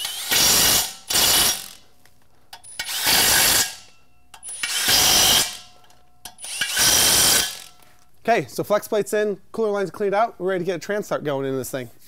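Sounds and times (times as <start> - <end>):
impact wrench hammering: 0.0 - 1.8, 2.5 - 7.8.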